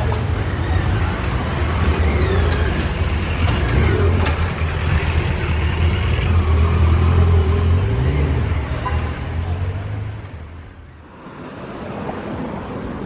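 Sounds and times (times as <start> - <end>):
vehicle engines idling: 0.0 - 13.0.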